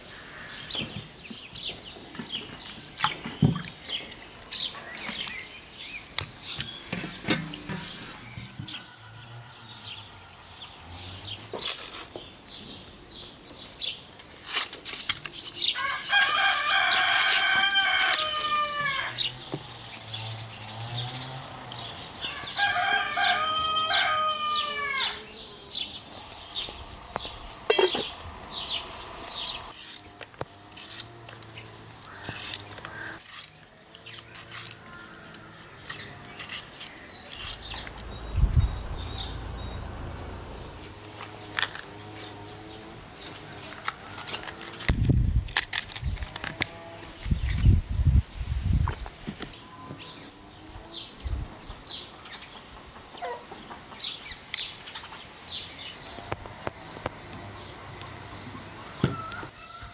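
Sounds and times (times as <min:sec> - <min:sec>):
rooster crowing: 0:08.7 - 0:10.4, 0:15.8 - 0:19.3, 0:22.2 - 0:25.4, 0:58.9 - 0:59.9.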